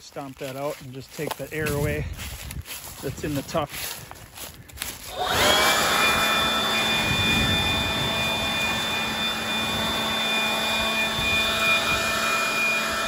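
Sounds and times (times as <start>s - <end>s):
leaf blower whining: 2.8s - 13.0s.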